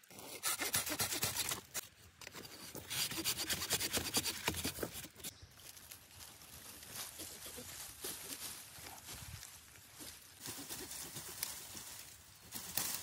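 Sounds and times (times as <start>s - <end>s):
hand saw cutting wood: 0.1s - 1.8s, 2.5s - 5.2s.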